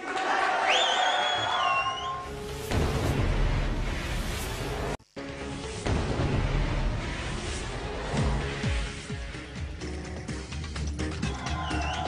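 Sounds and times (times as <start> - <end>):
music sting with deep boom: 2.3 - 9.4.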